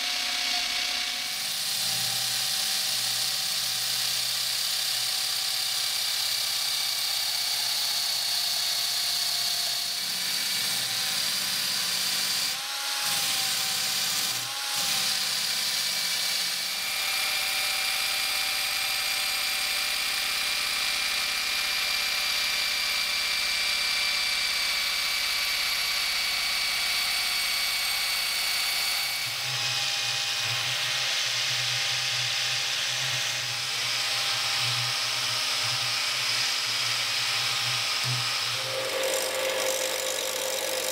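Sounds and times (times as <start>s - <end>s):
drill spinning wire brush: 0.0s - 40.9s
grinding wheel on metal: 38.0s - 40.9s.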